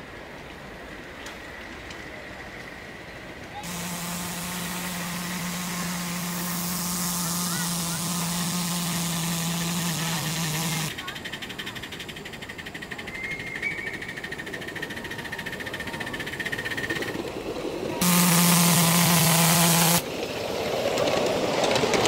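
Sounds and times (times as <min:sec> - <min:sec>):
steam hiss: 0:03.6 - 0:21.9
steam whistle blast: 0:03.7 - 0:10.9, 0:18.0 - 0:20.0.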